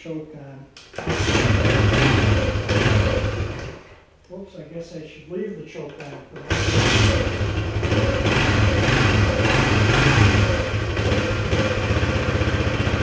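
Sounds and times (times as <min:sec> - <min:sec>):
motorcycle engine running: 0:01.1 - 0:03.8, 0:06.5 - 0:13.0.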